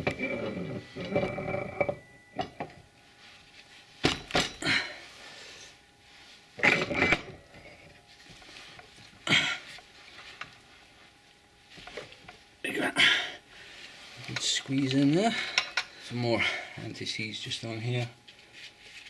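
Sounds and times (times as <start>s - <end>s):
metal brake drum clanking and scraping: 0.0s - 2.6s.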